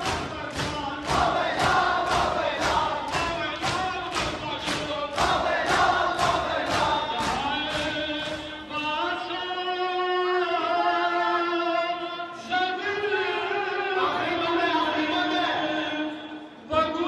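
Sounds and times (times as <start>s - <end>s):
sharp beats: 0.0s - 8.8s
men chanting: 0.0s - 16.9s.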